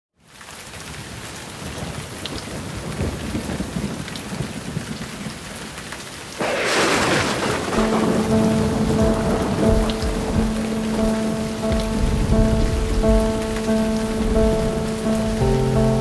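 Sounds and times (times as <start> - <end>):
rain falling: 0.2 - 16.0
low thunder rumbling: 6.4 - 16.0.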